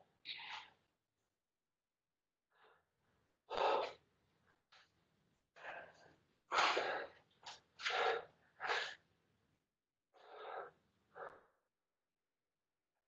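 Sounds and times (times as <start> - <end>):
person breathing hard: 2.5 - 4.0, 5.6 - 9.1, 10.2 - 11.6.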